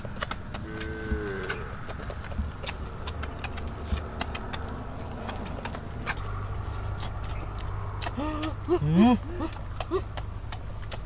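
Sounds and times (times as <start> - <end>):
crunchy chewing and crackles: 0.0 - 11.0
steady low rumble: 0.0 - 11.0
person humming: 0.6 - 1.7, 8.1 - 10.2.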